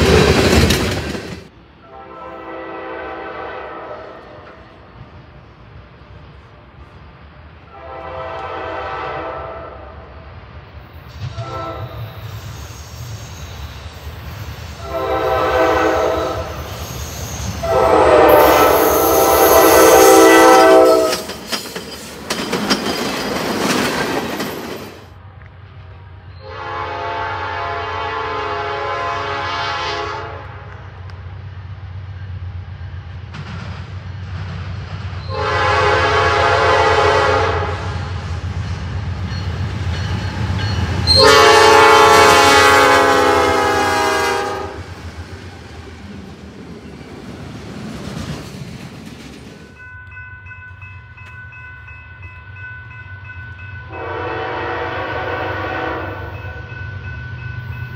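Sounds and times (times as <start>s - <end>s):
train engine and wheel noise: 0.0s - 57.9s
locomotive air horn blasts: 1.8s - 4.5s, 7.7s - 10.0s, 11.3s - 12.1s, 14.8s - 16.6s, 17.6s - 21.3s, 26.4s - 30.8s, 35.3s - 38.0s, 41.0s - 44.9s, 53.9s - 56.6s.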